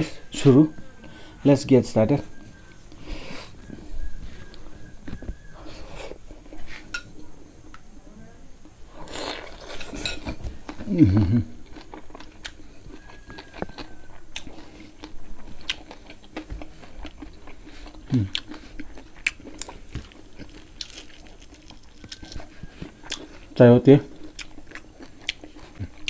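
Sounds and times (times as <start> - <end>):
people chewing with wet smacks: 9.0 - 26.0
voice humming: 10.8 - 11.6, 18.1 - 18.4.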